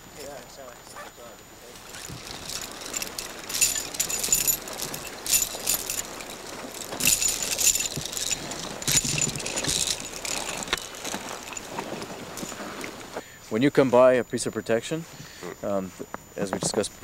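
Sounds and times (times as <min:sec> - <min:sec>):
metal climbing gear jingling: 0:01.7 - 0:13.2.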